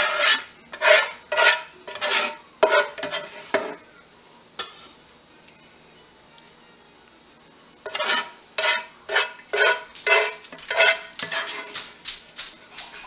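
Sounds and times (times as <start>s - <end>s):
spoon scraping a skillet: 0.0s - 3.8s, 4.6s - 5.0s, 7.8s - 12.0s.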